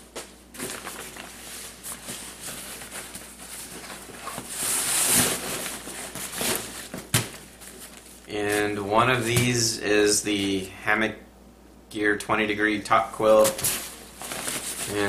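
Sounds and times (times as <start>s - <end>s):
nylon fabric rustling: 0.5s - 9.3s, 13.4s - 15.0s.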